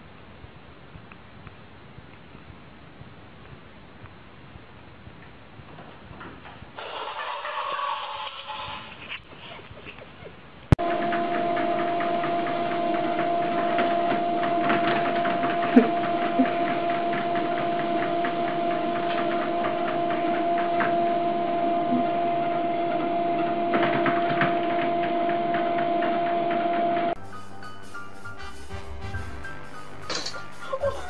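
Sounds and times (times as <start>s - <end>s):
treadmill motor hum and belt whirr: 10.7s - 27.2s.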